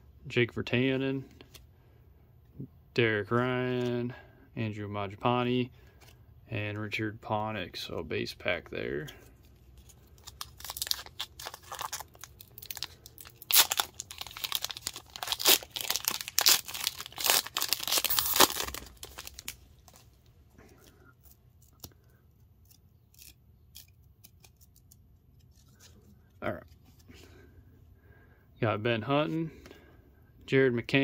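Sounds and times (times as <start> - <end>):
foil wrapper crinkling and tearing: 9.5 - 20.2.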